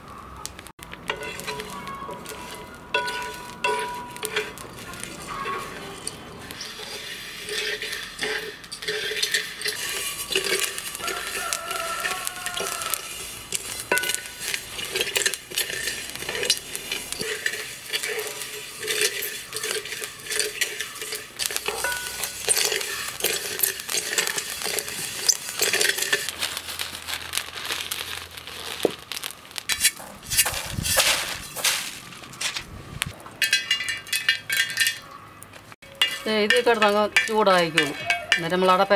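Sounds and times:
pods clattering into metal pan: 1.0 - 26.4, 33.4 - 35.1, 35.8 - 38.9
wooden spatula stirring: 1.0 - 31.9, 35.8 - 38.9
rice grains scraping in metal pan: 1.0 - 35.0, 35.8 - 38.9.

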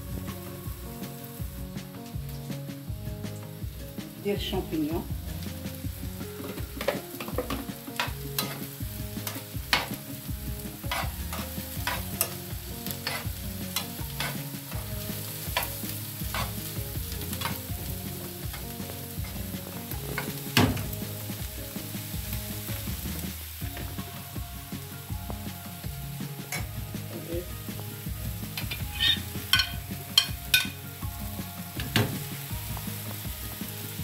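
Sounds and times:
vegetables sizzling in a frying pan: 0.0 - 34.0
spoon clicking against pan: 6.8 - 8.7, 28.6 - 30.8.

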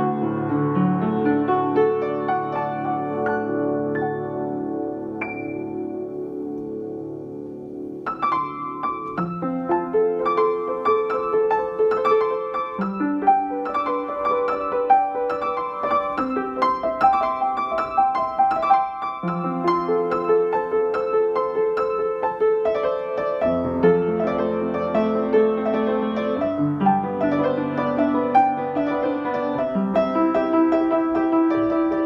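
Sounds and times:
piano music: 0.0 - 32.0.

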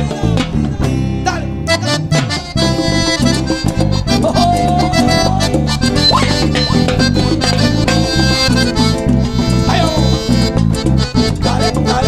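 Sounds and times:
live cumbia band playing: 0.0 - 12.0.

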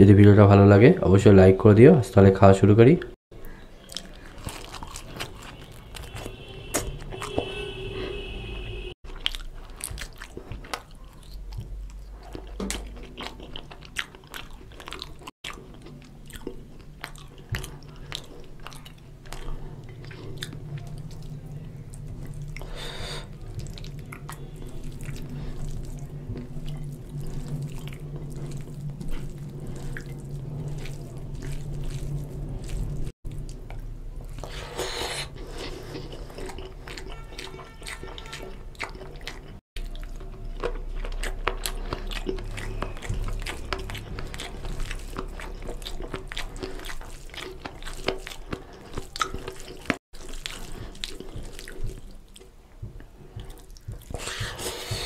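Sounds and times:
wet squishes of mixing food: 3.3 - 55.0
chewing and biting: 3.4 - 7.5, 9.0 - 55.0
steady low hum: 15.5 - 36.9.

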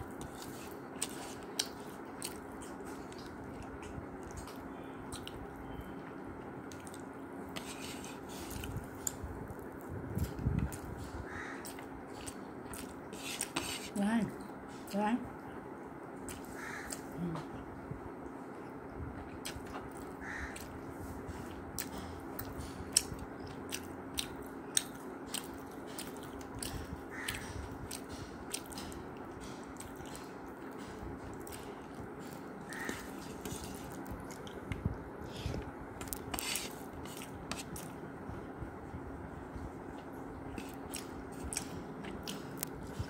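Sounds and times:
steady low hum: 0.0 - 43.0
chewing and wet mouth clicks: 3.1 - 5.5
fingers working food on plate: 21.8 - 38.0, 40.4 - 43.0.

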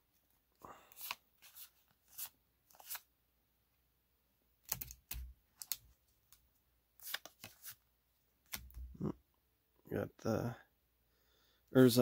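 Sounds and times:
trading cards flipped by hand: 0.9 - 3.1, 4.6 - 7.8, 8.4 - 8.9.

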